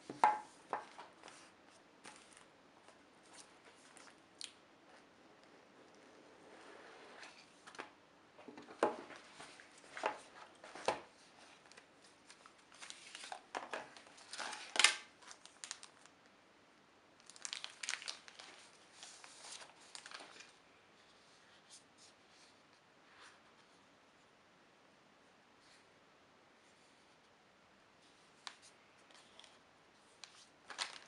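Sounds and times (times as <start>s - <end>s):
plastic wrapping crinkling: 9.4s - 16.1s, 17.2s - 20.5s, 30.2s - 31.0s.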